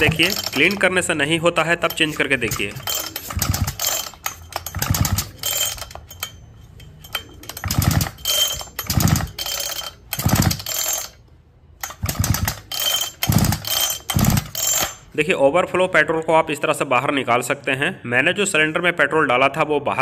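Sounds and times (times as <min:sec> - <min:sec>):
chainsaw recoil starter pulled: 0:00.0 - 0:11.2, 0:11.8 - 0:15.0.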